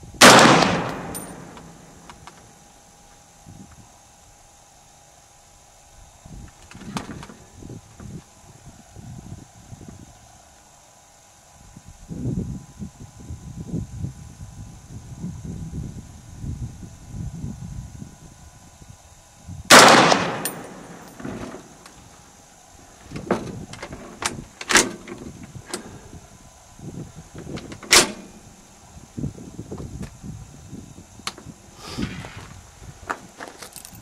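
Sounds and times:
rifle shot with echo: 0:00.2 - 0:02.0, 0:19.7 - 0:21.8
metallic clicks of rifle handling: 0:00.3 - 0:02.4, 0:19.7 - 0:22.0.

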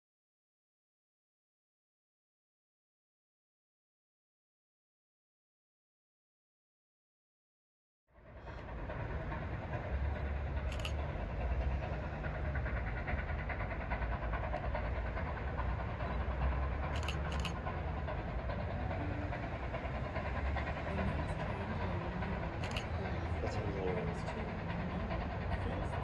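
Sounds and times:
train rail rumble: 0:08.2 - 0:26.0.

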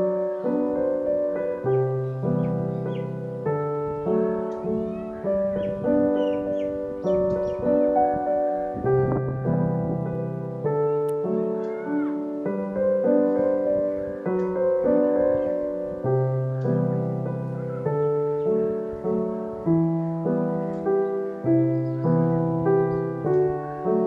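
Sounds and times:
gentle piano music: 0:00.0 - 0:24.0.

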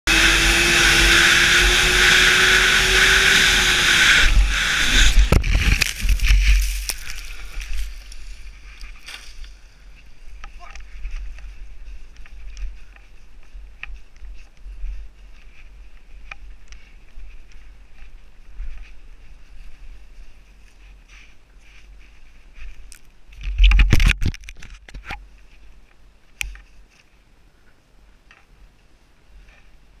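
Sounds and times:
snowmobile engine running: 0:00.1 - 0:08.4
wind rumbling on microphone: 0:00.1 - 0:21.1, 0:21.9 - 0:26.2
footsteps crunching through snow: 0:02.5 - 0:23.3.

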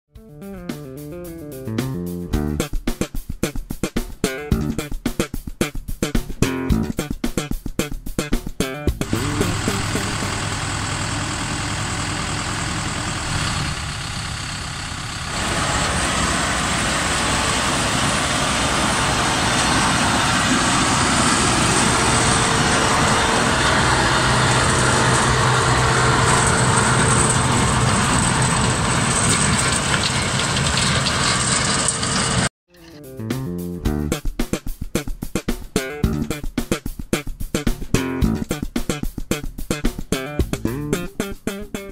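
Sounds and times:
tractor diesel engine under load: 0:09.0 - 0:32.5
rotary tiller churning soil: 0:09.1 - 0:32.5.

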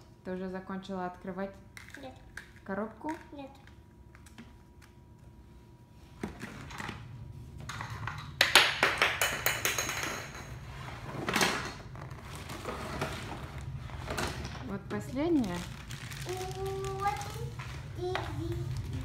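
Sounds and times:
packaging scraping and sliding: 0:12.0 - 0:14.5.

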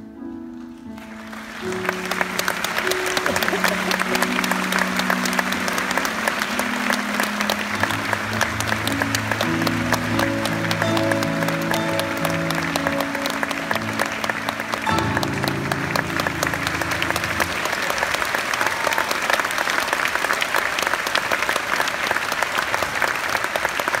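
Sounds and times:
audience applauding: 0:00.7 - 0:24.0
held chords of a song: 0:01.8 - 0:17.8.

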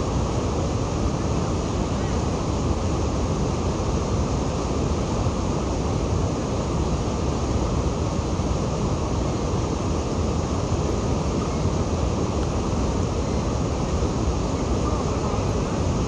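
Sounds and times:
rushing rapids and waterfall: 0:00.0 - 0:16.0.

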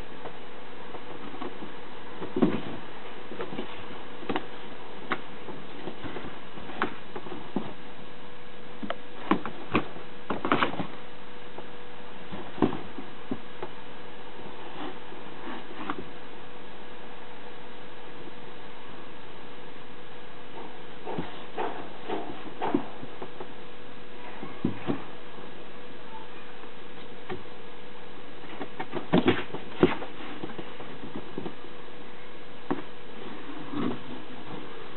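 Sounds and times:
faint steady hum: 0:00.0 - 0:34.9
cat moving in cardboard box: 0:01.0 - 0:07.8, 0:14.6 - 0:16.1, 0:28.4 - 0:31.7.

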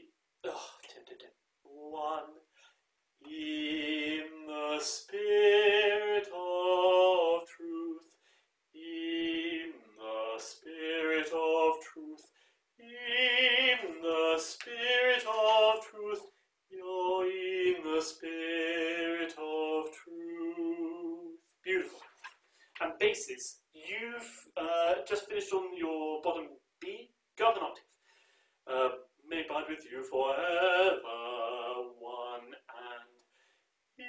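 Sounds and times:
person singing choral line: 0:01.7 - 0:02.5, 0:03.2 - 0:08.2, 0:08.8 - 0:21.8, 0:28.7 - 0:33.2.

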